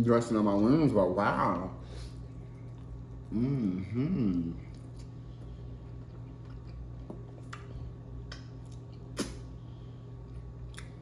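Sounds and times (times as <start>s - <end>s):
steady low hum: 0.0s - 11.0s
person chewing food: 4.2s - 11.0s.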